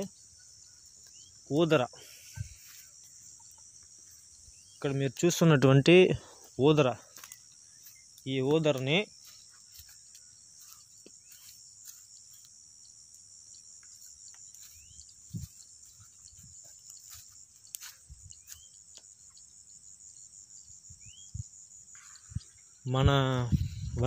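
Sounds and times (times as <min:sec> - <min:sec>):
rising bird chirps: 0:00.0 - 0:05.0, 0:13.9 - 0:17.3, 0:18.0 - 0:19.7, 0:20.6 - 0:24.0
insects chirring: 0:00.0 - 0:24.0.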